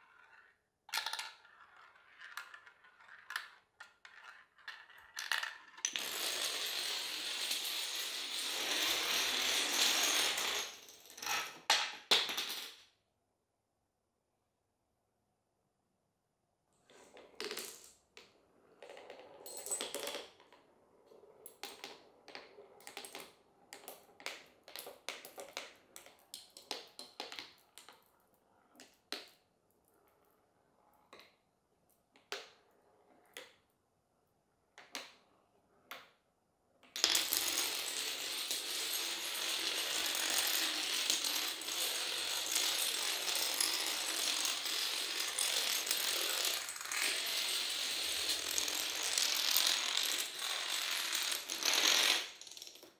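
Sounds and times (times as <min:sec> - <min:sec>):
marbles rolling on wooden slats: 0:00.0 - 0:12.8, 0:17.1 - 0:29.3, 0:36.9 - 0:52.9
dominoes toppling: 0:37.0 - 0:52.9.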